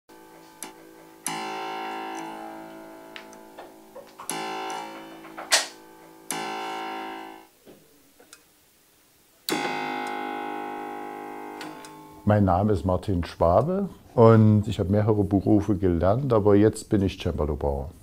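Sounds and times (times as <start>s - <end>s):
harpsichord chords: 0.1s - 7.5s, 9.5s - 12.3s.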